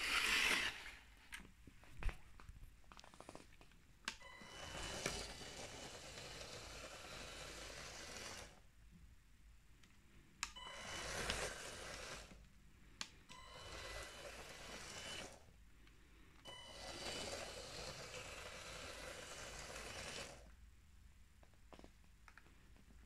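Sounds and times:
toy train motor running: 0:00.0 - 0:01.0, 0:04.4 - 0:08.6, 0:10.7 - 0:12.4, 0:13.4 - 0:15.4, 0:16.5 - 0:20.5.

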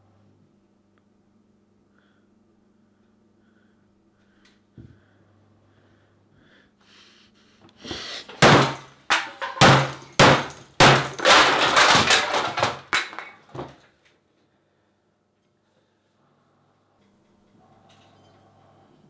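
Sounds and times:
heavy smashing blows: 0:08.3 - 0:13.8.

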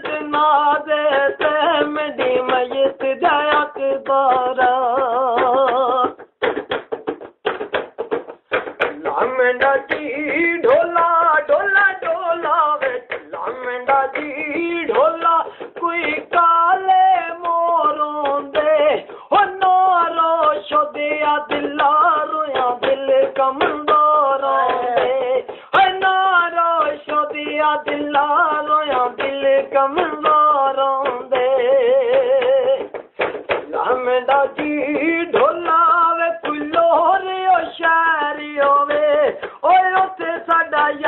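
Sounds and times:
man singing: 0:00.0 - 0:06.6, 0:08.5 - 0:41.0
singer breathing: 0:15.5 - 0:15.8, 0:19.0 - 0:19.4, 0:25.5 - 0:25.7, 0:39.4 - 0:39.6.

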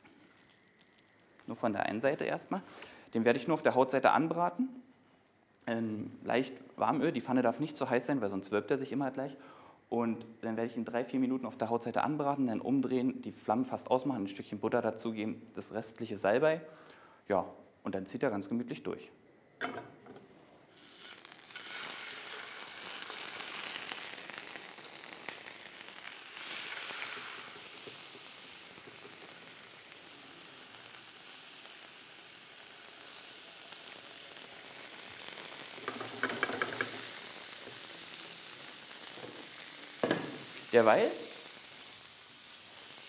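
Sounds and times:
fish sizzling in a pan: 0:20.7 - 0:43.0.

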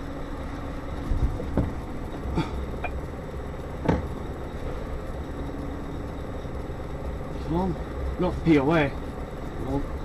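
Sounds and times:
truck engine rumbling: 0:00.0 - 0:10.0
knocks and clunks: 0:03.8 - 0:04.1.

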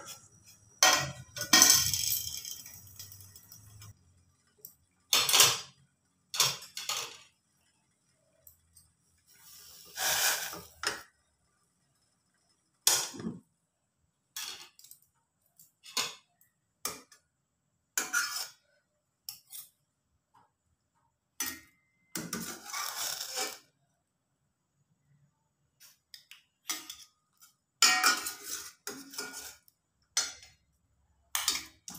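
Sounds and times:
spoons clinking against steel pot: 0:00.0 - 0:03.9, 0:26.2 - 0:30.6, 0:31.3 - 0:31.9.

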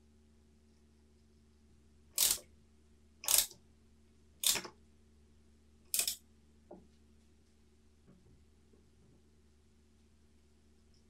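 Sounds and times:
ratchet wrench clicking: 0:02.2 - 0:02.4, 0:03.2 - 0:03.6, 0:04.4 - 0:04.7, 0:05.9 - 0:06.2.

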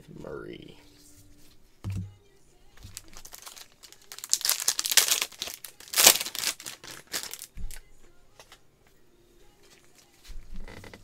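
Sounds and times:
foil wrapper crinkling and tearing: 0:02.8 - 0:07.8.

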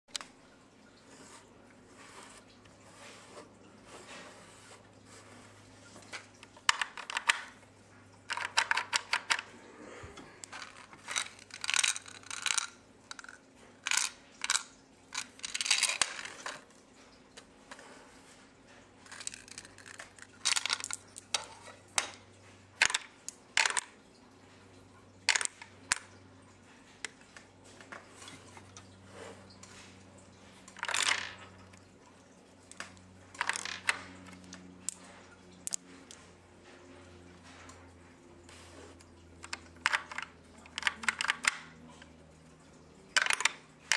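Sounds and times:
faint steady hum: 0:00.1 - 0:43.9
plastic bricks clicking and clattering: 0:06.1 - 0:07.6, 0:08.3 - 0:09.5, 0:10.4 - 0:16.7, 0:19.0 - 0:22.2, 0:22.8 - 0:24.0, 0:25.3 - 0:26.1, 0:30.7 - 0:31.6, 0:32.7 - 0:36.2, 0:39.4 - 0:42.1, 0:43.0 - 0:43.9.

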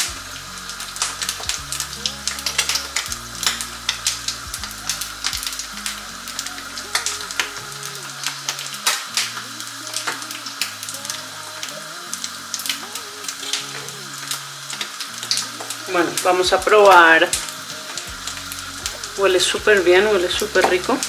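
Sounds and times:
eggs sizzling in a skillet: 0:00.0 - 0:21.0.

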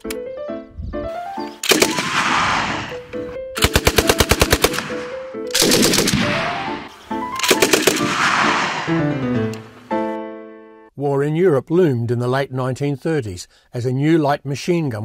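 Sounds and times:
background music: 0:00.0 - 0:11.0
machine gun firing bursts: 0:01.6 - 0:03.0, 0:03.6 - 0:06.8, 0:07.4 - 0:09.0.

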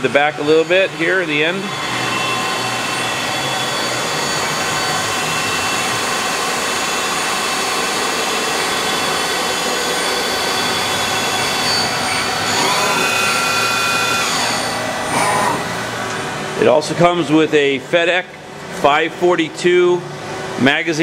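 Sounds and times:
lathe machine whir: 0:00.0 - 0:16.8
machine whines: 0:00.0 - 0:17.3.

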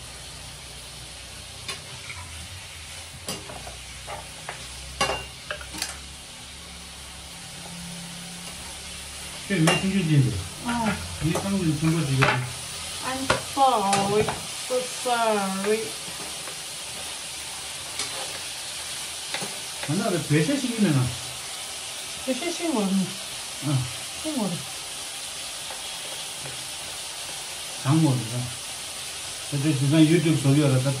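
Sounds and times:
food sizzling in a pan: 0:00.0 - 0:31.0
utensil scraping a pan: 0:17.8 - 0:18.6.

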